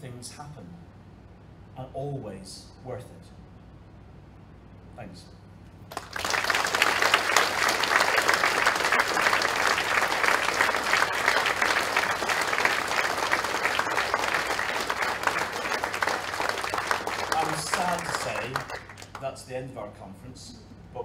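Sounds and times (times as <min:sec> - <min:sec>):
audience applauding: 0:05.9 - 0:19.4.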